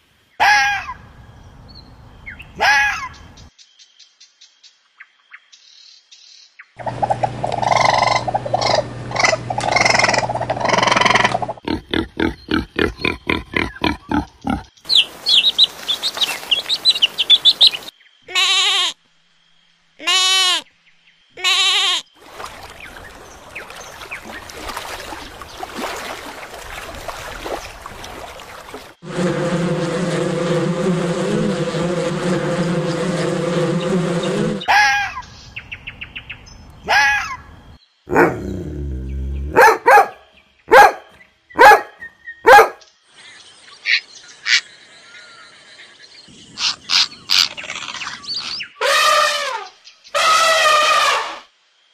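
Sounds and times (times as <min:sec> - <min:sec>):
cranes calling: 0:06.8 - 0:11.7
bee colony buzzing: 0:29.0 - 0:34.7.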